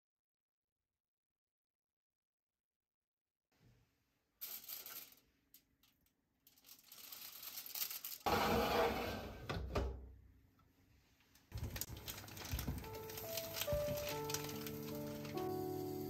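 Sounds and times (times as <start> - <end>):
foil rustling and clicks: 6.5 - 8.3, 11.5 - 16.0
oven door scraping clunk: 8.3 - 9.8.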